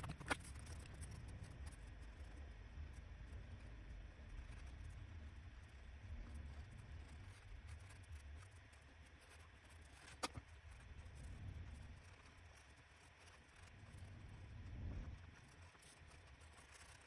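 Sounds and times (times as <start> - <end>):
pencil scratching on paper: 15.4 - 17.0.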